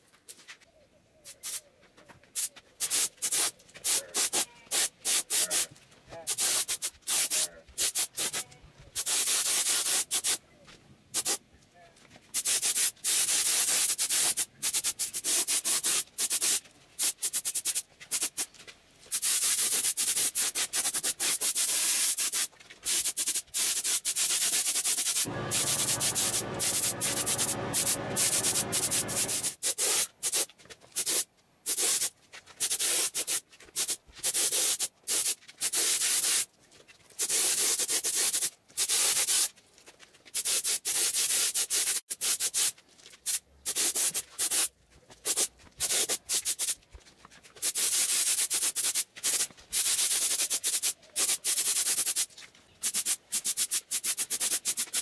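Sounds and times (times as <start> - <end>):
harsh hissing bursts: 25.2 - 29.8.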